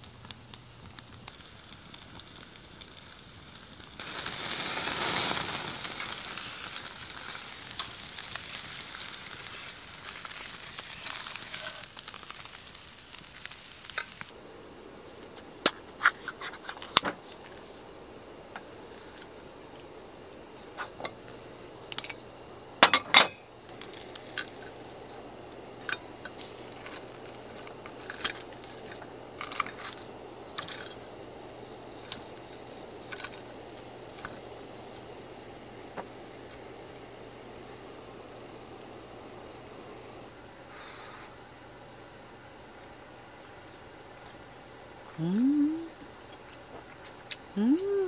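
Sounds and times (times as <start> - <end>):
hiss: 0.0 - 48.0
tableware clinking and knocking: 22.8 - 23.4.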